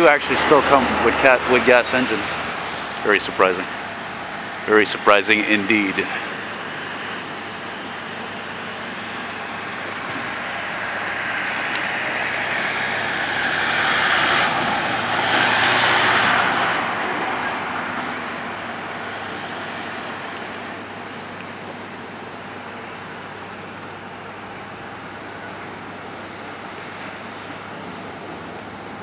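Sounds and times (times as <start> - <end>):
background traffic noise: 0.0 - 29.0
vehicle passing close by: 8.5 - 20.7.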